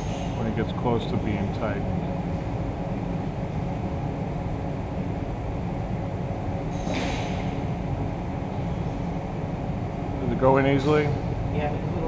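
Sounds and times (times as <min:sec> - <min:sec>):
machine shop hum: 0:00.0 - 0:12.0.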